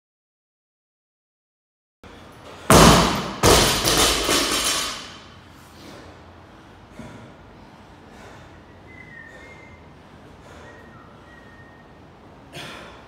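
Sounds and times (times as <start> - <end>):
barbell banging on floor: 2.7 - 5.2
barbell clattering: 3.0 - 5.2.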